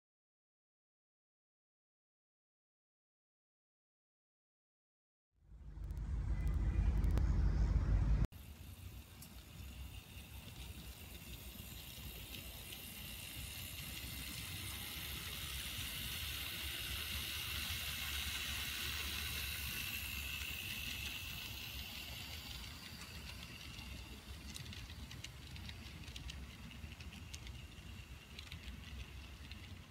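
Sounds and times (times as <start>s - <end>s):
model train whirring: 8.3s - 29.9s
train wheels clicking: 8.4s - 29.9s.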